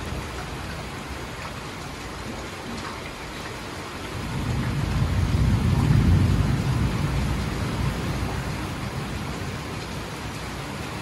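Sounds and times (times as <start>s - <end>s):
heavy rain hissing: 0.0s - 11.0s
thunder rumble: 4.2s - 10.1s.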